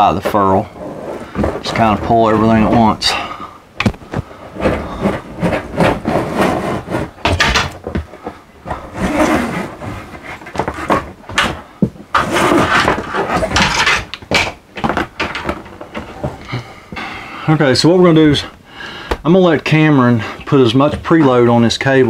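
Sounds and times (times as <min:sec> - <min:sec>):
steel cable scraping and rustling: 0:00.1 - 0:03.4, 0:04.1 - 0:07.4, 0:12.1 - 0:14.2.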